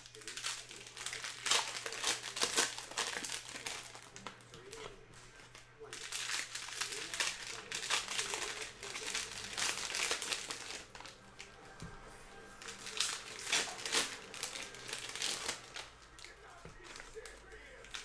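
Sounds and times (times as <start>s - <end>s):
cellophane wrappers crinkling: 0.0s - 11.7s, 12.6s - 18.0s.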